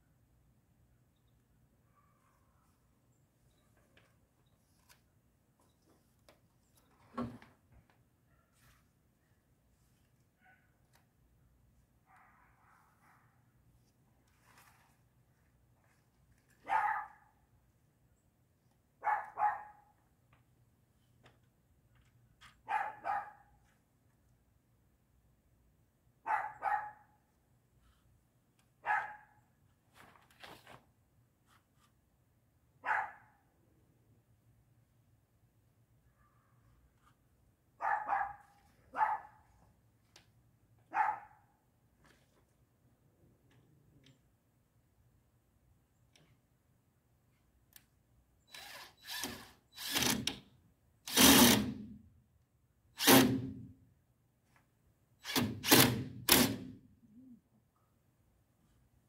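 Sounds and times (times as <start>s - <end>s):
dog barking: 10.4s - 10.7s, 12.1s - 13.4s, 16.6s - 17.3s, 19.0s - 19.9s, 22.7s - 23.5s, 26.2s - 27.1s, 28.8s - 29.4s, 32.8s - 33.4s, 37.8s - 39.4s, 40.9s - 41.5s
power drill driving screws: 48.5s - 50.4s, 51.1s - 51.8s, 53.0s - 53.6s, 55.2s - 56.7s.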